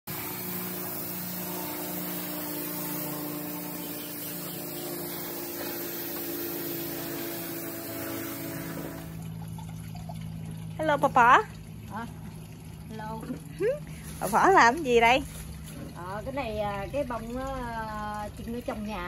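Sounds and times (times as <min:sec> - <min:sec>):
hose nozzle spraying water: 0:00.0 - 0:09.3.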